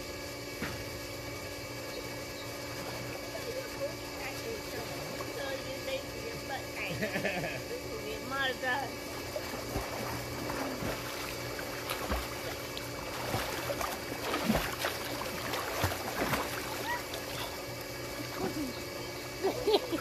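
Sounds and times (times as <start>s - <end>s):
steady hum: 0.0s - 20.0s
pool water splashing: 2.6s - 6.2s, 8.9s - 20.0s.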